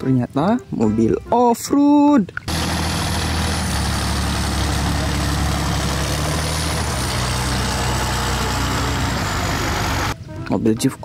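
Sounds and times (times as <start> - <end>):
truck engine running in mud: 2.5 - 10.2.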